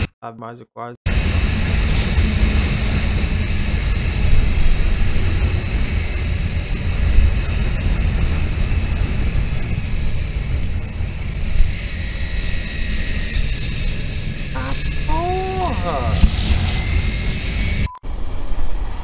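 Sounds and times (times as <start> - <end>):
wind buffeting microphone: 1.1 - 15.0
road noise: 1.1 - 17.9.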